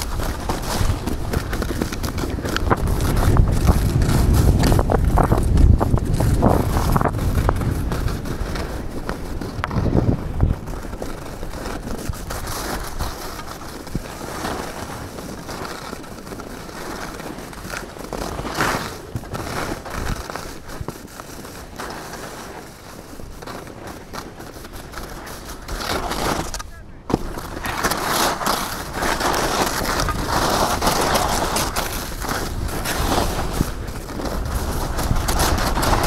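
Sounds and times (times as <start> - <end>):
skis scraping over snow: 0.0 - 36.0
snow crackling: 0.0 - 36.0
wind on microphone: 0.0 - 36.0.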